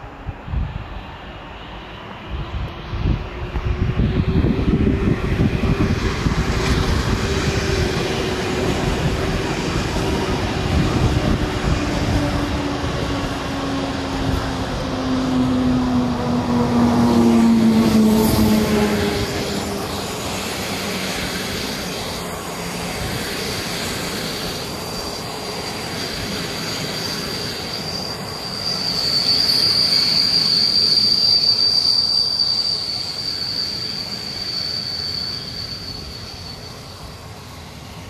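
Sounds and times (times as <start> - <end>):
train coaches rumbling past: 0.0 - 38.0
high steady squeal: 17.4 - 38.0.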